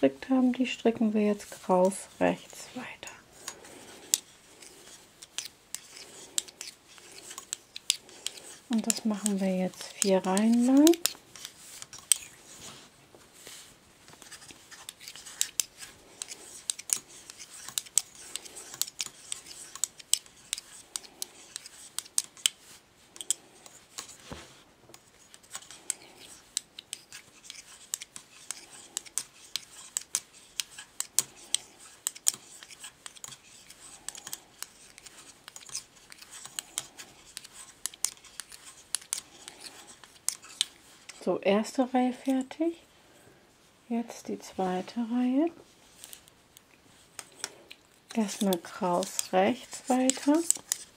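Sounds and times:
soft rubbing of yarn: 0.0s - 50.9s
metal knitting needles clicking: 3.4s - 12.3s, 14.2s - 22.6s, 23.2s - 24.2s, 24.9s - 41.2s, 47.2s - 50.9s.

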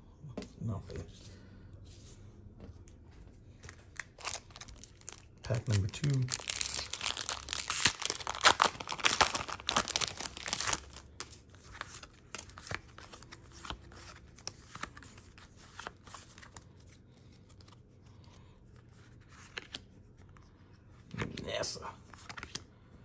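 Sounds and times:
foil pack crinkling and tearing: 4.0s - 13.2s.

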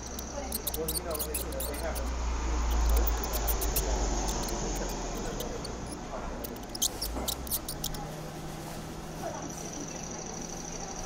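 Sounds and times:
sharp high clicks: 0.0s - 8.0s
mouse nibbling: 0.0s - 8.1s.

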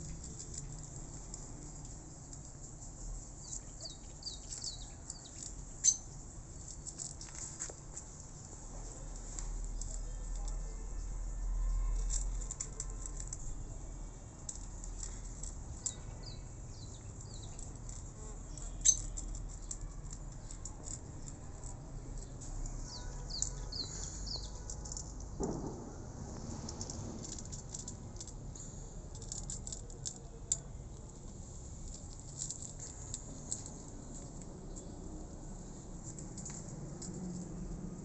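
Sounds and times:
cat crunching dry kibble: 0.0s - 2.4s, 29.1s - 34.6s.

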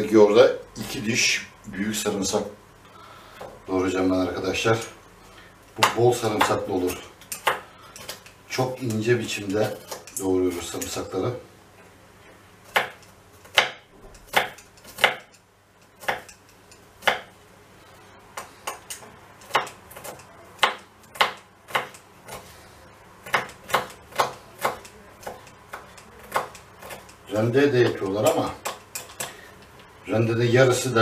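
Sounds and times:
knife chopping on wooden board: 5.8s - 6.7s, 7.4s - 8.2s, 12.7s - 15.4s, 16.0s - 16.3s, 17.0s - 17.3s, 18.4s - 22.4s, 23.2s - 27.2s.

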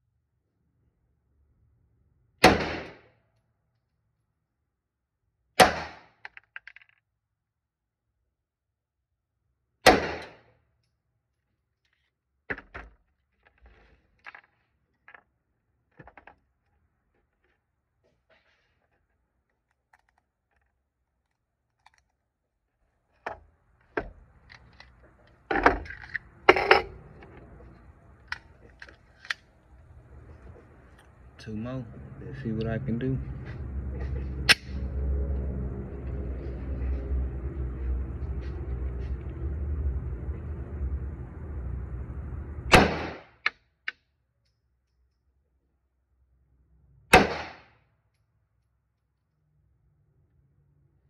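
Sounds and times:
pistol shots echoing: 2.4s - 3.0s, 5.6s - 6.0s, 9.9s - 10.4s, 42.7s - 43.2s, 47.1s - 47.6s
gun handling clicks: 28.2s - 29.7s.

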